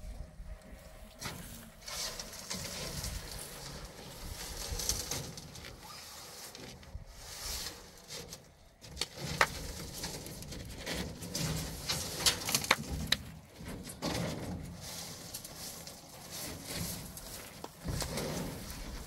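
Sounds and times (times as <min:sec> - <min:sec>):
brush sweeping sand: 0:01.2 - 0:08.5, 0:14.7 - 0:19.0
sharp scrapes and knocks: 0:01.2 - 0:19.0.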